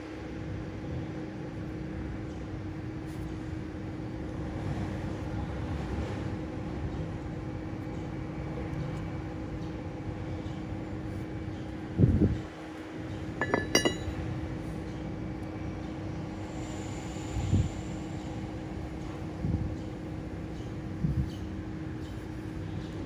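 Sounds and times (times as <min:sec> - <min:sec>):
constant hum: 0:00.0 - 0:23.0.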